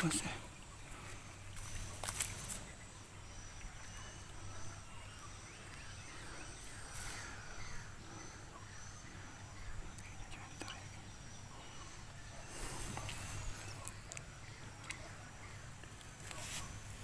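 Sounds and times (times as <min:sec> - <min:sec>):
insects chirping: 0:00.0 - 0:17.0
steady low hum: 0:00.0 - 0:17.0.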